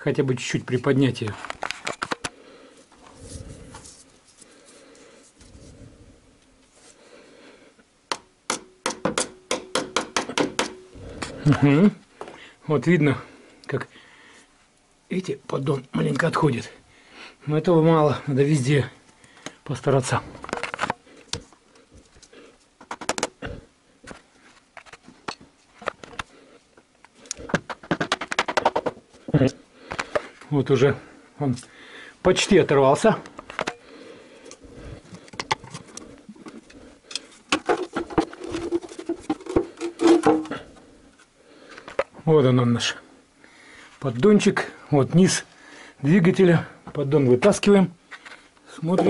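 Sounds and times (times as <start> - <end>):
faint handling and rubbing: 1.0 - 7.2, 34.4 - 42.2.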